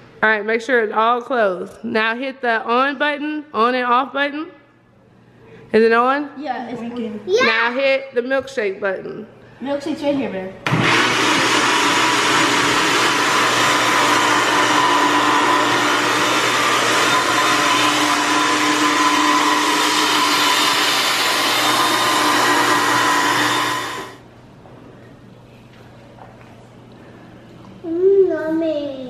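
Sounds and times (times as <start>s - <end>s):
blender motor whine: 10.6s - 24.2s.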